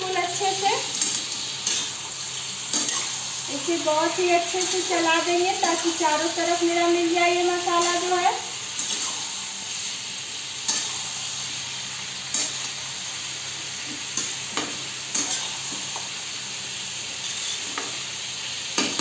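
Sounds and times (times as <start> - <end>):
vegetables sizzling in oil: 0.0 - 19.0
metal spoon scraping a pan: 2.7 - 3.2, 10.6 - 11.1, 12.3 - 12.7, 14.2 - 15.9, 17.2 - 18.0.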